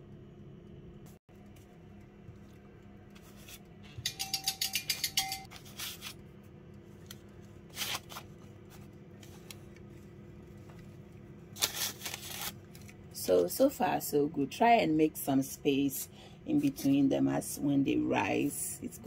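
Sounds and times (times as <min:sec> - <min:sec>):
faint room hum: 0:00.0 - 0:19.0
baking paper crinkling: 0:05.5 - 0:13.0.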